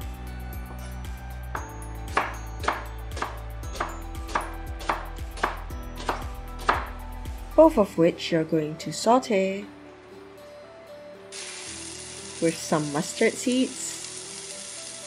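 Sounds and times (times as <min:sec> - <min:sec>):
background music: 0:00.0 - 0:15.0
knife chopping on wooden board: 0:02.1 - 0:07.0.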